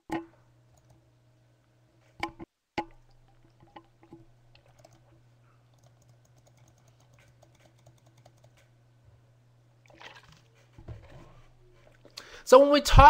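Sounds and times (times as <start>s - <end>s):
low electrical hum: 0.0s - 13.0s
computer keyboard typing: 4.5s - 5.1s, 5.7s - 8.7s.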